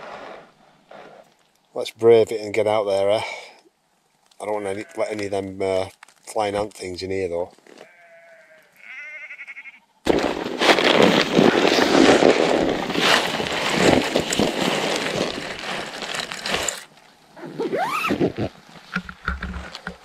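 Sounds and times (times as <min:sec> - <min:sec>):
tent fabric rustling and crackling: 0:10.1 - 0:20.0.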